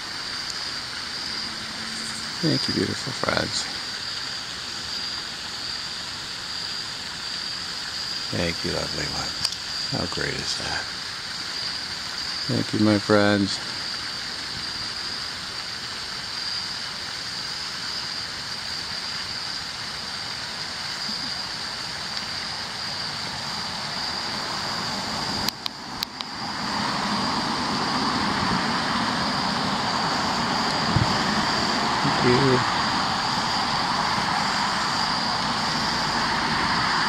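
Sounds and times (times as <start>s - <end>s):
rushing noise: 0.0s - 4.2s, 22.4s - 37.0s
high whine: 0.0s - 37.0s
outdoor background hiss: 0.0s - 37.0s.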